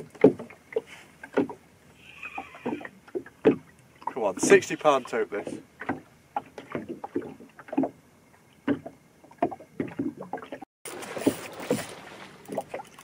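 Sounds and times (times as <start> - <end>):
rush of wind and water: 0.0 - 13.0
water slapping boat hull: 0.0 - 13.0.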